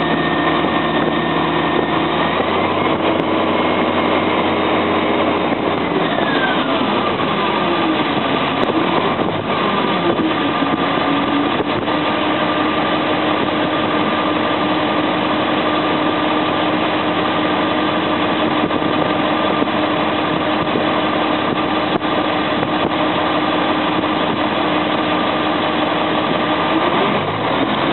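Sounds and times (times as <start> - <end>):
whine falling in pitch: 0.0 - 27.1
heavy diesel engine running: 0.0 - 27.9
steady rushing noise: 0.0 - 27.9.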